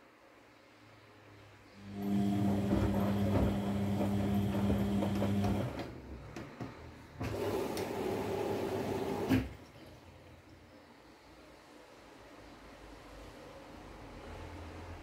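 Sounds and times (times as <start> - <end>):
washing machine motor humming: 1.8 - 9.9
laundry knocking and splashing: 2.4 - 5.8.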